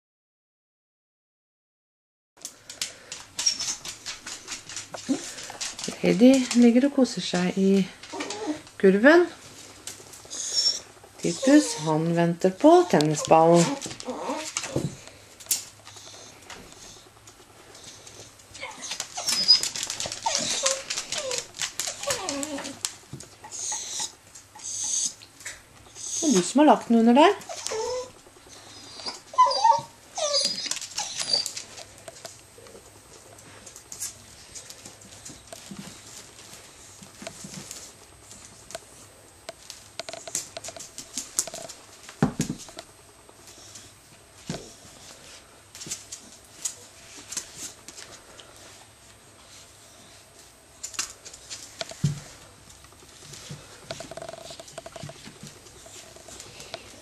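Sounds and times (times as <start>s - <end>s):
dog whining: 3.4s - 3.8s, 8.1s - 8.7s, 10.3s - 12.0s, 13.1s - 14.9s, 18.5s - 22.8s, 23.4s - 25.2s, 25.9s - 26.4s, 27.4s - 31.8s
dog claws scratching: 17.8s - 24.1s.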